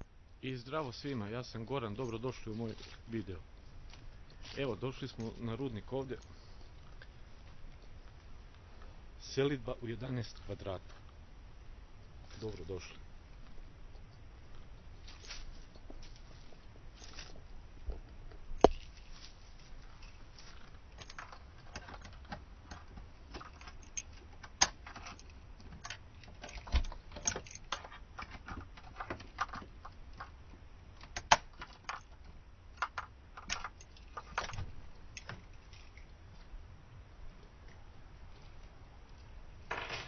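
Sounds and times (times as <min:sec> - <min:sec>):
keys jangling: 0:21.0 - 0:29.6.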